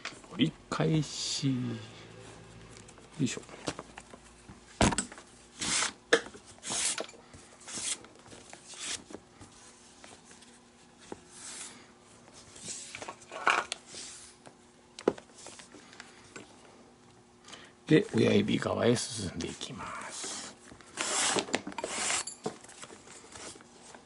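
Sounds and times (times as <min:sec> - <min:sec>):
lace rasping through holes: 0:20.2 - 0:22.3.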